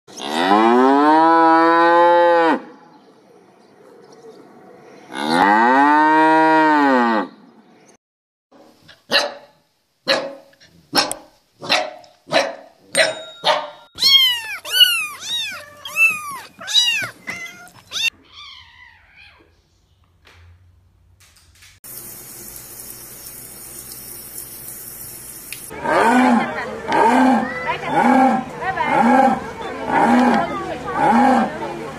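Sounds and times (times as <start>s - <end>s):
cow mooing: 0.1s - 2.7s, 5.1s - 7.3s, 25.7s - 31.6s
puppies barking: 11.0s - 18.8s
puppies crying: 13.5s - 19.5s.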